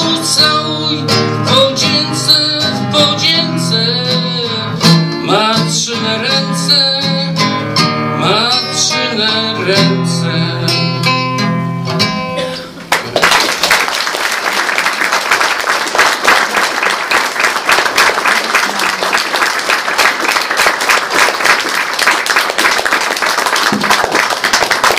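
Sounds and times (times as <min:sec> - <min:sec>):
audience applauding: 0:12.9 - 0:24.9.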